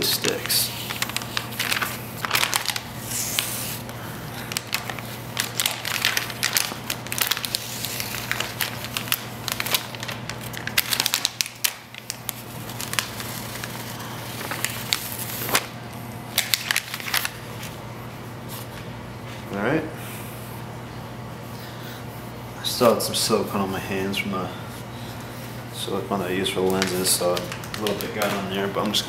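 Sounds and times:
paper peeling and crinkling: 0.0s - 17.8s, 26.2s - 29.0s.

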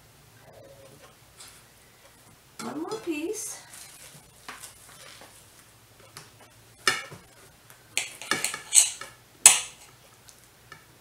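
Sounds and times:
utensils clinking on crockery: 8.0s - 9.9s.

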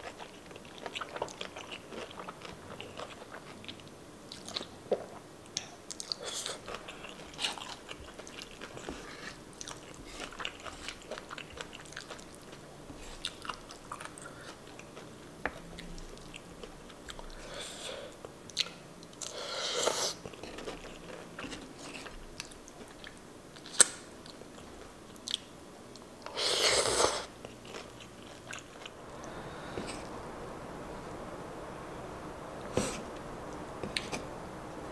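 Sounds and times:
chewing pasta: 0.0s - 30.1s
slurping noodles: 26.3s - 27.3s.

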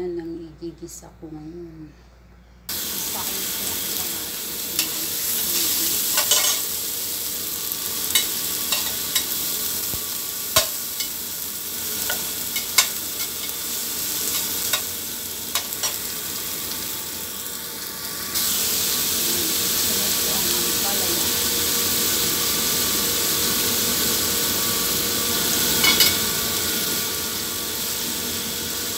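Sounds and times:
vegetables sizzling in oil: 2.7s - 28.9s.

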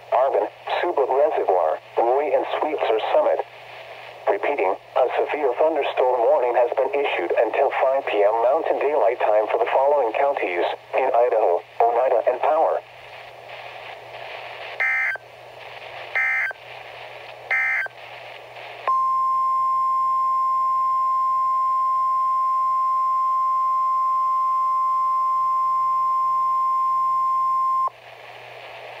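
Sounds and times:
radio hiss: 0.0s - 19.0s, 27.9s - 29.0s.

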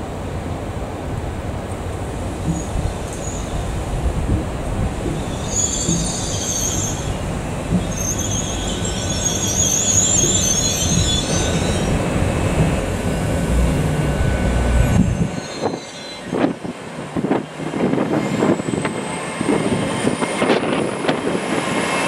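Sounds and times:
train engine rumble: 0.0s - 22.0s
wheels squealing while braking: 5.2s - 7.2s, 7.8s - 12.0s, 14.9s - 16.4s.

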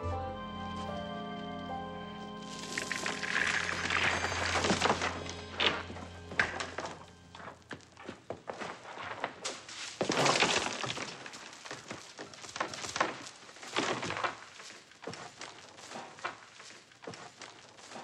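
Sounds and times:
beads clattering on hard floor: 2.5s - 7.5s.

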